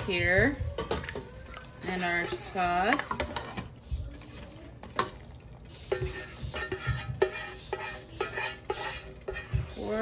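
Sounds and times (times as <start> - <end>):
spatula scraping sauce: 1.2 - 10.0
spatula clinking on metal: 5.9 - 9.7.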